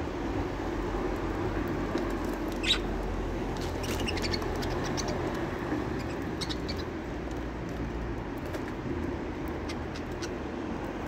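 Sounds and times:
budgerigars chirping: 0:02.6 - 0:02.9, 0:03.8 - 0:05.3, 0:06.0 - 0:06.9.

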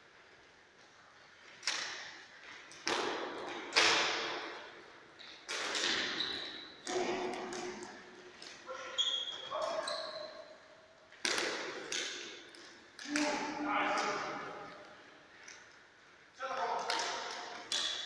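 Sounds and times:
plastic sticks striking ball: 0:01.6 - 0:06.2, 0:11.1 - 0:14.8, 0:16.5 - 0:18.0.

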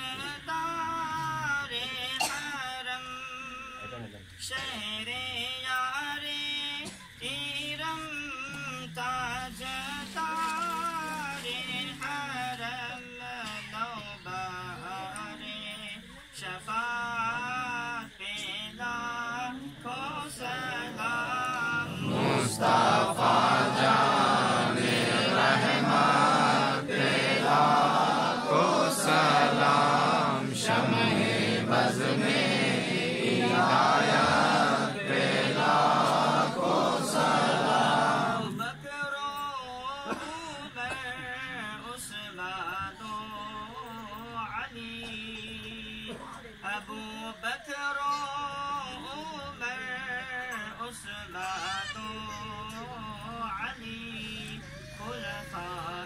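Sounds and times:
man singing ornamented chant: 0:00.0 - 0:56.0
group of voices chanting: 0:20.5 - 0:38.6.

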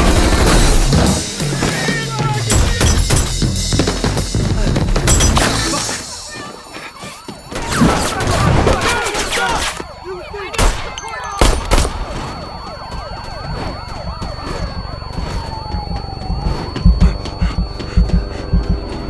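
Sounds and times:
police sirens wailing: 0:00.0 - 0:19.0
heavy low thumps: 0:14.1 - 0:19.0.

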